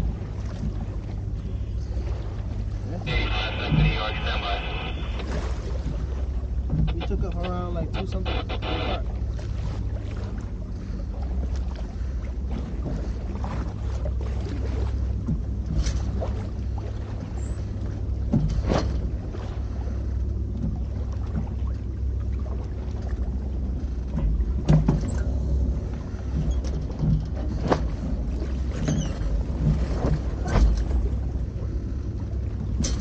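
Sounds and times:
low rumble: 0:00.0 - 0:21.7.

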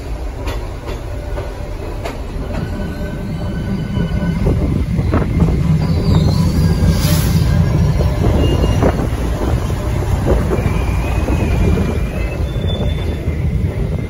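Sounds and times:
diesel locomotive low rumble: 0:00.0 - 0:14.0
thin wheel squeals: 0:05.4 - 0:09.1, 0:10.5 - 0:13.5.

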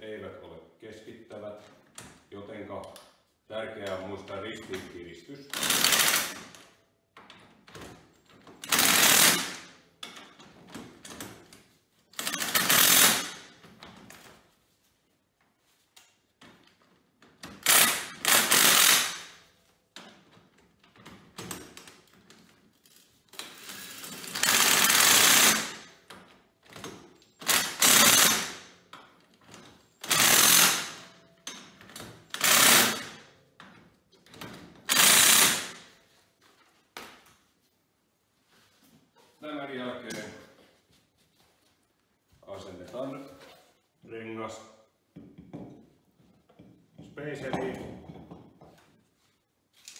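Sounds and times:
impact wrench hammering nuts: 0:05.5 - 0:11.5, 0:12.2 - 0:13.9, 0:17.3 - 0:20.4, 0:23.4 - 0:36.0, 0:45.1 - 0:48.9.

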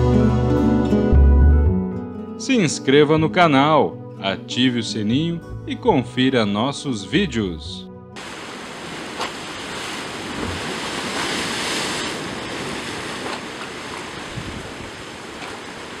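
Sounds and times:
surf washing over rocks: 0:08.2 - 0:16.0.

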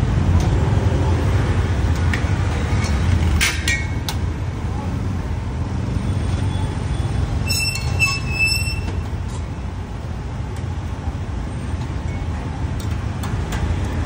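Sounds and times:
street traffic rumble: 0:00.0 - 0:14.0
high-pitched metallic squeal: 0:07.4 - 0:09.1.

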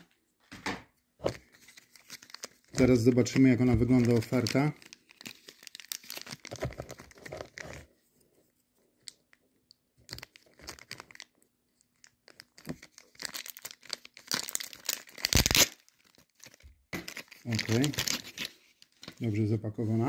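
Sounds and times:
packaging crinkling and tearing: 0:01.3 - 0:07.9, 0:10.0 - 0:19.2.

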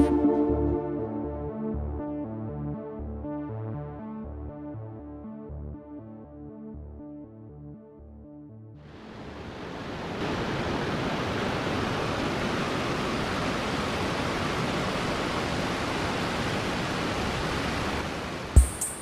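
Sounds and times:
synth music: 0:00.0 - 0:08.8
rushing river water: 0:08.9 - 0:18.6.

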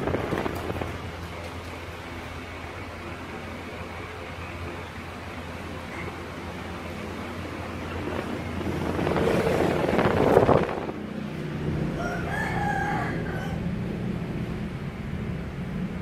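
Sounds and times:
rushing noise: 0:00.0 - 0:16.0
drawn-out wavering animal call: 0:11.9 - 0:13.8.

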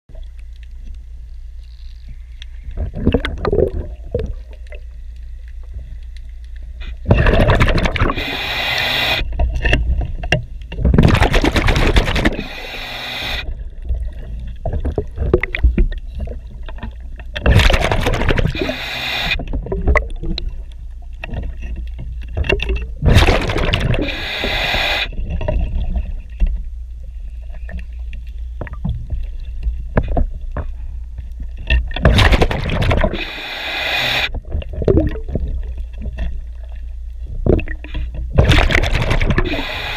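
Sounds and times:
diver exhaling bubbles: 0:02.8 - 0:04.6, 0:07.0 - 0:09.2, 0:17.5 - 0:20.5, 0:23.0 - 0:25.8, 0:32.0 - 0:35.7, 0:37.5 - 0:39.9
steady low rumble: 0:19.4 - 0:33.2, 0:34.4 - 0:39.9.

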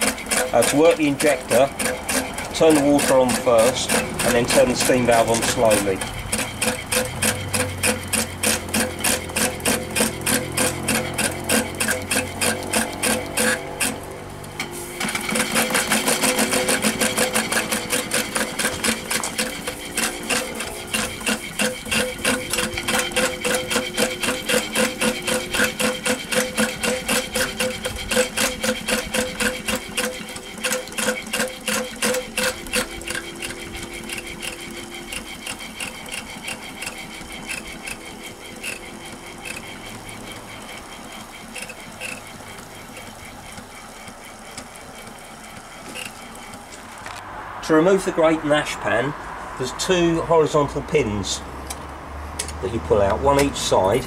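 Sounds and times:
steam engine mechanical clatter: 0:00.0 - 0:47.1
steam hissing: 0:14.6 - 0:32.5.

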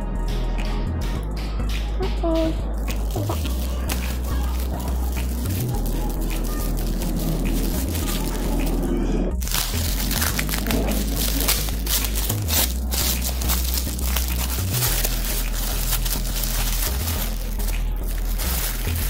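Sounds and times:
plastic bag crinkling: 0:02.8 - 0:08.8, 0:09.4 - 0:19.0.

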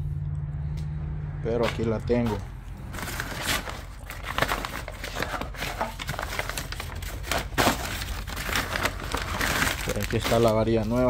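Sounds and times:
plastic bag crinkling: 0:02.3 - 0:11.0.

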